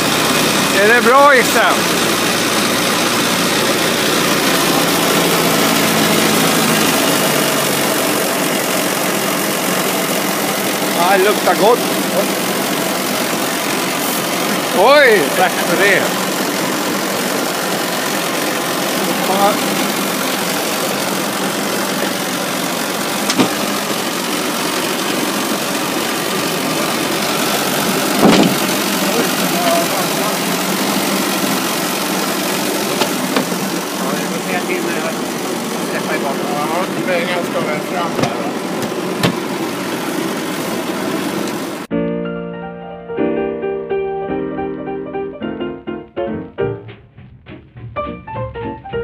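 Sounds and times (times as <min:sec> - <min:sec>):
boat inboard engine running: 0:00.0 - 0:41.9.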